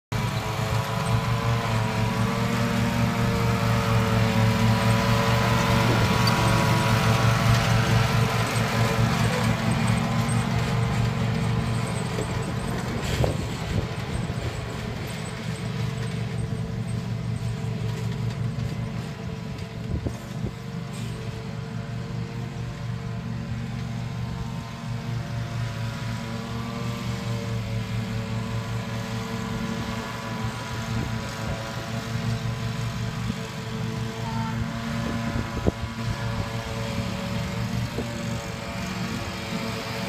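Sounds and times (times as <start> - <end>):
lawn mower engine running: 0.1 - 40.0.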